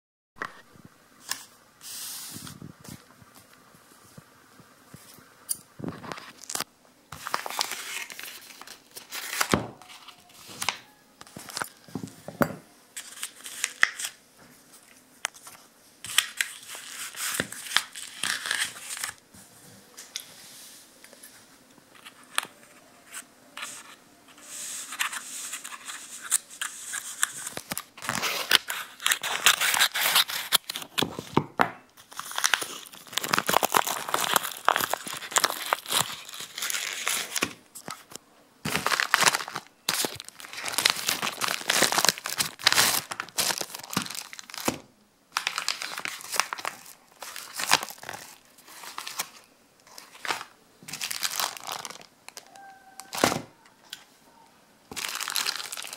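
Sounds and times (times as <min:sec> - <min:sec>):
plastic bag crinkling: 0:05.9 - 0:12.2, 0:32.0 - 0:53.4, 0:54.9 - 0:55.9
paper envelope tearing: 0:06.0 - 0:10.8, 0:13.0 - 0:14.2, 0:15.4 - 0:19.2, 0:22.0 - 0:31.1, 0:32.0 - 0:38.1, 0:38.7 - 0:44.8, 0:45.4 - 0:52.1, 0:54.9 - 0:55.9.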